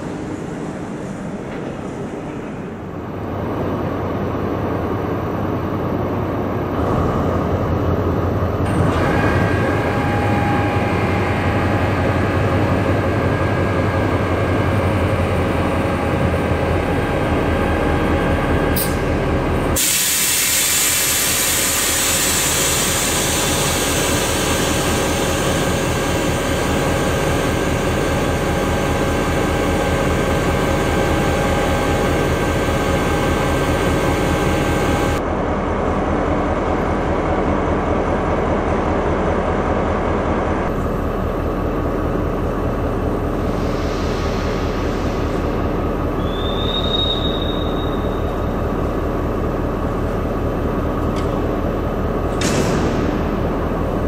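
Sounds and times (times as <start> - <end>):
diesel locomotive humming: 0.0 - 54.0.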